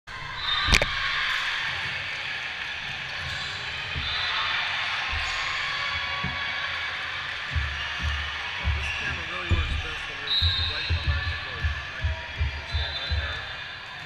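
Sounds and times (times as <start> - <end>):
echoing crowd chatter: 0.1 - 14.0
ball bouncing on wooden floor: 7.5 - 13.5.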